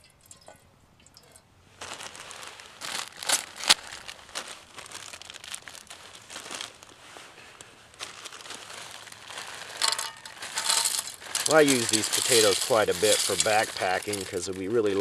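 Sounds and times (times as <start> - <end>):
paper pouch crinkling: 1.8 - 15.0
sharp paper crackles: 1.8 - 15.0.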